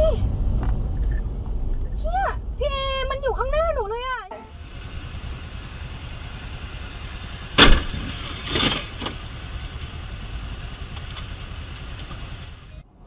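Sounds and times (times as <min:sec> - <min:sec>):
motorcycle low rumble: 0:00.0 - 0:13.0
rough noise: 0:00.3 - 0:12.8
sharp bang: 0:07.3 - 0:09.3.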